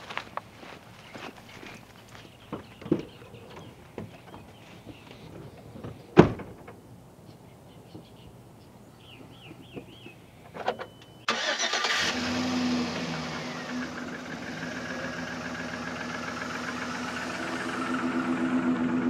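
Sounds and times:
car engine starting and idling: 10.6s - 19.0s.

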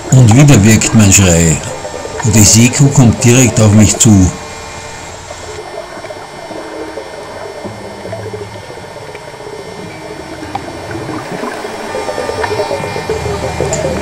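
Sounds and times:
underwater water noise: 0.0s - 14.0s
small clicks and gurgles: 5.3s - 14.0s.

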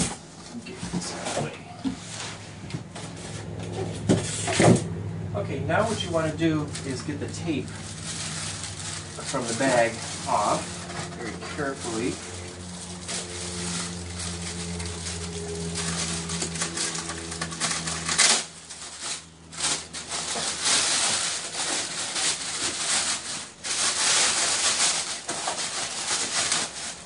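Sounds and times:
plastic bag crinkling: 5.8s - 27.0s.

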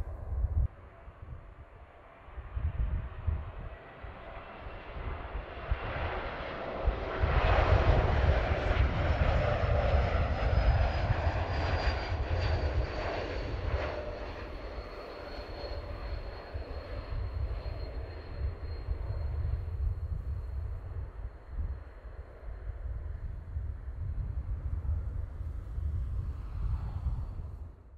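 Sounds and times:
jet engine noise: 0.0s - 27.9s.

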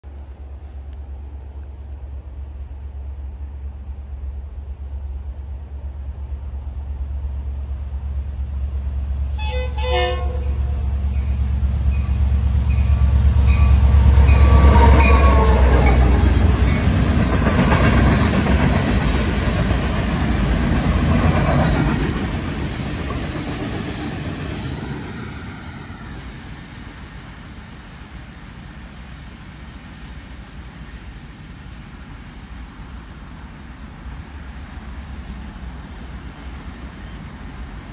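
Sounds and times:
diesel engine rumble: 0.0s - 31.4s
locomotive horn blast: 9.2s - 16.8s
train wheels clattering on rails: 9.2s - 26.7s.

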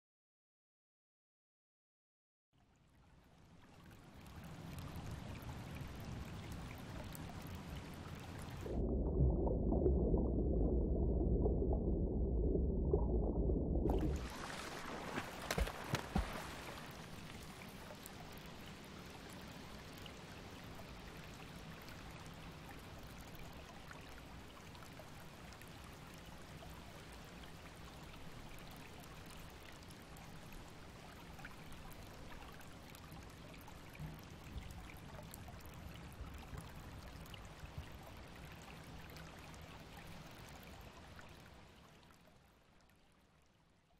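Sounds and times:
water trickling: 2.9s - 12.2s, 13.8s - 43.5s
water splashes: 13.8s - 42.1s.

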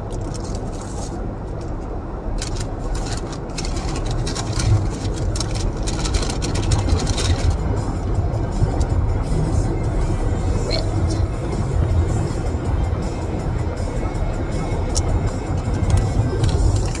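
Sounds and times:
car idling rumble: 0.0s - 17.0s
paper bag rustling and crinkling: 2.4s - 7.6s.

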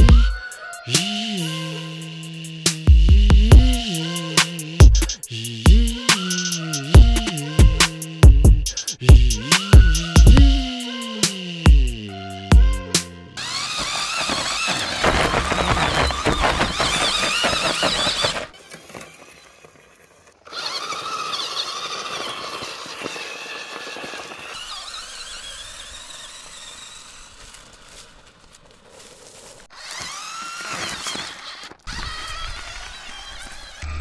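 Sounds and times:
cordless drill motor whining: 12.5s - 28.7s, 29.6s - 34.0s.

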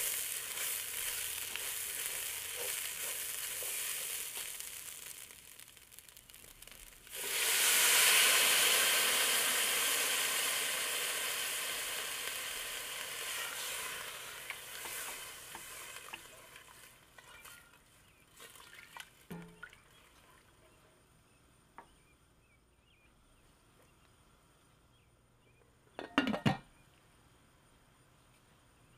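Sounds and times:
loud sizzling hiss: 0.0s - 18.3s
rice frying: 0.0s - 20.0s.

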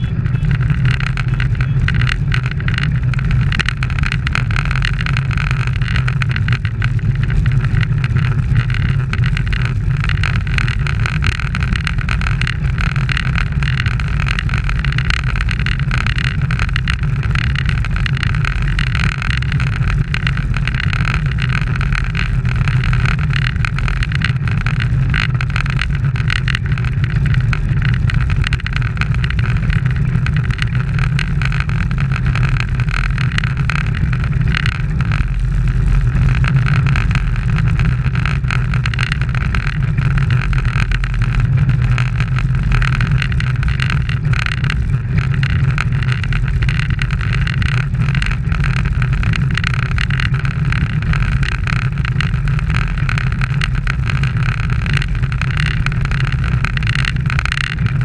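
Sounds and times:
road rumble: 0.0s - 58.0s.

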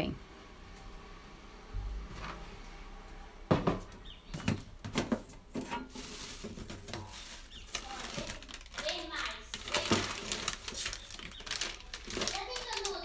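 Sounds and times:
small objects knocking and tapping: 3.6s - 13.0s.

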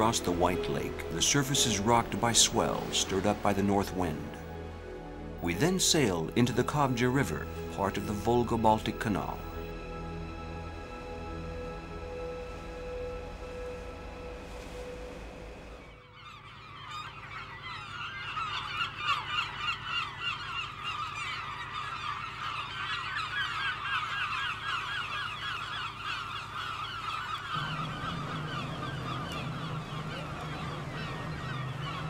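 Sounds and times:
low steady hum: 0.0s - 16.1s, 27.5s - 32.0s
gulls calling: 0.0s - 32.0s.

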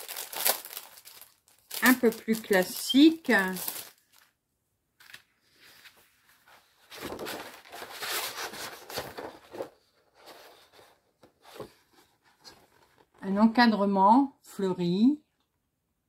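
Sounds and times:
plastic packaging crinkling: 0.0s - 4.4s.

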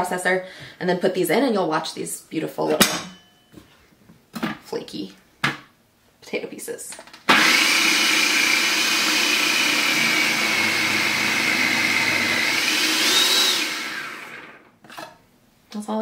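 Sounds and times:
food processor grating potatoes: 7.3s - 14.6s.

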